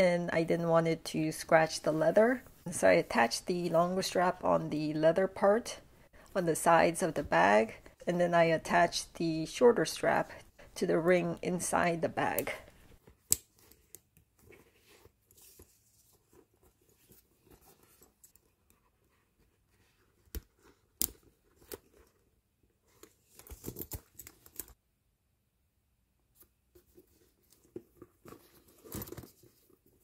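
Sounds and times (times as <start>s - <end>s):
leather rustling: 12.8s - 24.8s, 26.7s - 30.0s.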